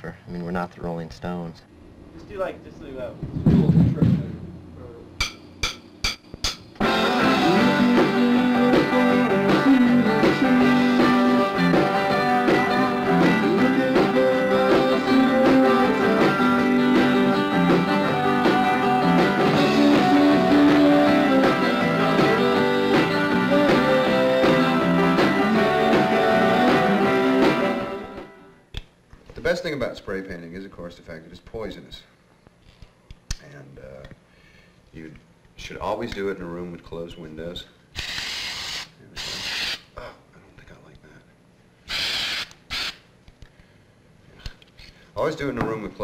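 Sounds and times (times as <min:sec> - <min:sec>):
person singing: 0:06.8 - 0:28.4
rock band playing: 0:06.8 - 0:28.5.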